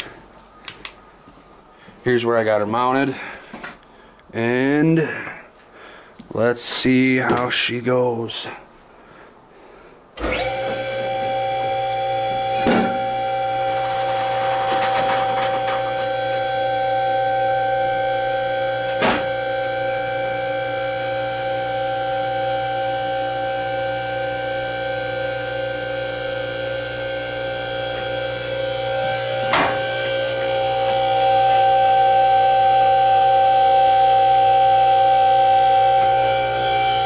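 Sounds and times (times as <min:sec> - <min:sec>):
hydraulic pump motor whining: 0:10.2 - 0:37.0.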